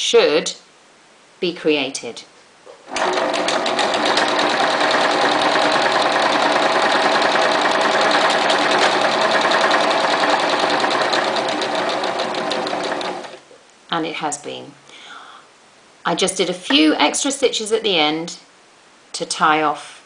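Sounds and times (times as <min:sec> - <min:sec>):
sewing machine stitching: 0:02.9 - 0:13.4.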